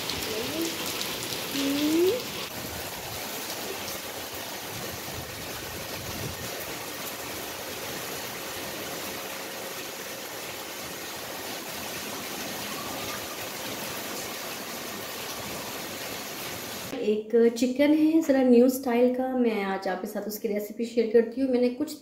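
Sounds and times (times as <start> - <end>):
rain splashing on tiles: 0.0 - 16.9.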